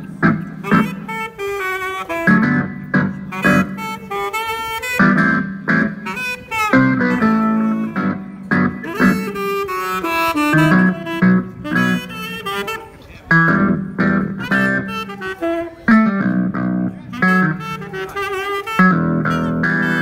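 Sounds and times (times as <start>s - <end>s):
backing track with guitar and bass: 0.0s - 20.0s
saxophone melody: 0.0s - 20.0s.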